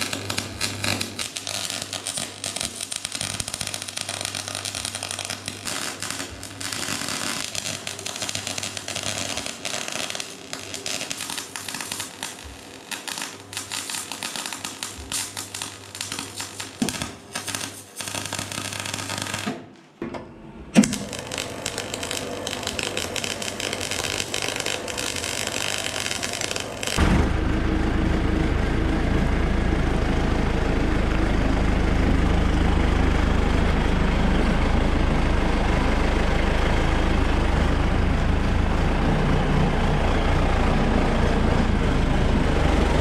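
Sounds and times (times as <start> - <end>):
welding arc crackling: 0.0 - 19.7, 20.8 - 27.1
low steady hum: 27.0 - 43.0.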